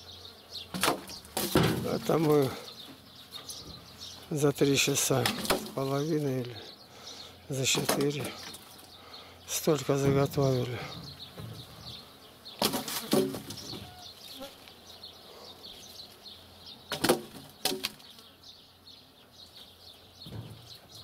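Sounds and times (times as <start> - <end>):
small birds chirping: 0.0 - 21.0
logs landing on log pile: 0.7 - 2.6, 5.1 - 5.9, 12.6 - 13.9, 16.9 - 18.1.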